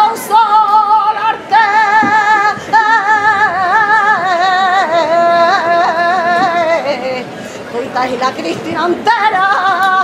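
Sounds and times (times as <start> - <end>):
woman singing unaccompanied: 0.0 - 10.0
short breaths: 7.3 - 7.7.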